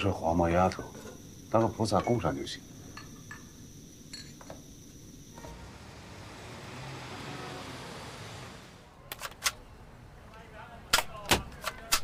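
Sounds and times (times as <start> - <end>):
city traffic noise: 5.3 - 10.9.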